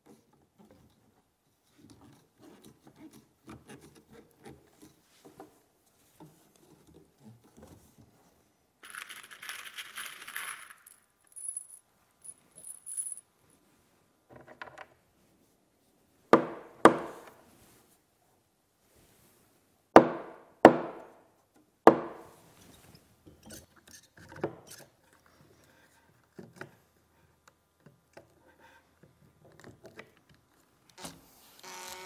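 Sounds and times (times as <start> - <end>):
screws rattling in plastic box: 8.8 - 11.7
loud sharp knocks: 16.4 - 17.3, 20.0 - 21.1, 21.9 - 22.3.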